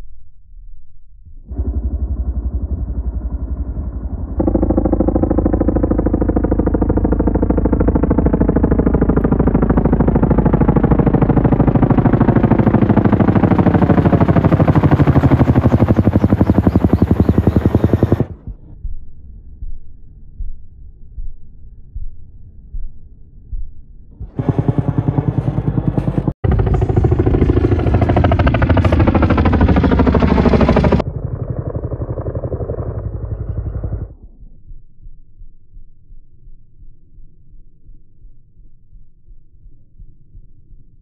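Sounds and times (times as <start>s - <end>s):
turbine whine: 1.3s - 19.0s, 24.2s - 34.3s
helicopter rotor thumping: 1.5s - 19.0s, 24.2s - 34.2s.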